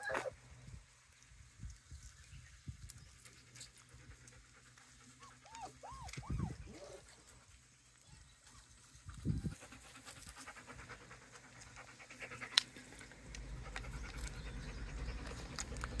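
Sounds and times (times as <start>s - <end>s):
dog panting: 8.8s - 16.0s.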